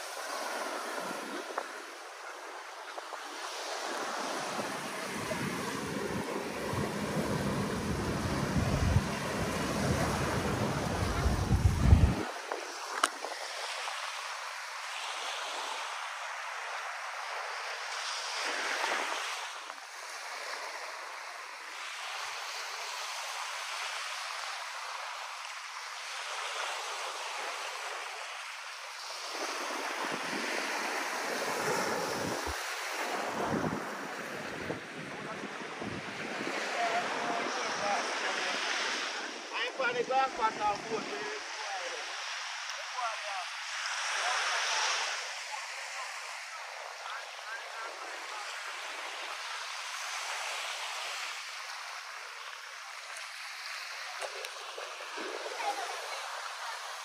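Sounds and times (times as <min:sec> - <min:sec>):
small waves breaking on sand: 0:00.0 - 0:57.0
wind rumble on microphone: 0:04.6 - 0:13.4, 0:29.7 - 0:37.8.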